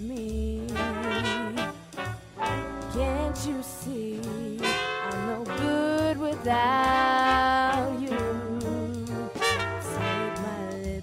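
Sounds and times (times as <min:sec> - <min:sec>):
woman singing: 0:00.0 - 0:01.8, 0:02.9 - 0:11.0
jazz song with brass: 0:00.0 - 0:11.0.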